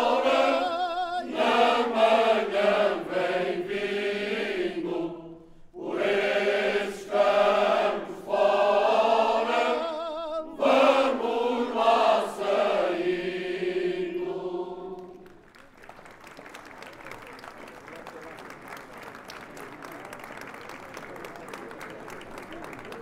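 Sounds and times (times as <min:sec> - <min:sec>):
crowd singing a cappella: 0:00.0 - 0:15.3.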